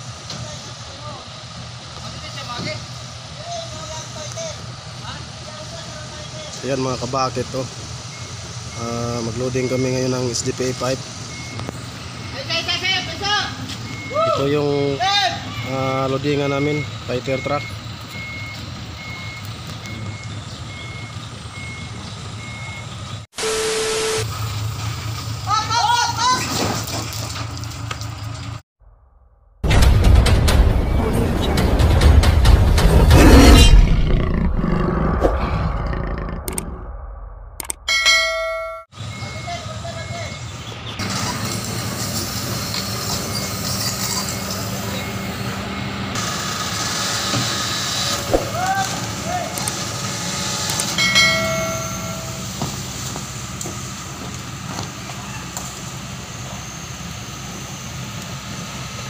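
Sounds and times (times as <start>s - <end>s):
backup alarm beeping: 11.3s - 13.0s, 13.8s - 14.5s, 16.5s - 24.3s, 37.9s - 40.6s, 51.0s - 52.6s
diesel engine running: 39.0s - 59.0s.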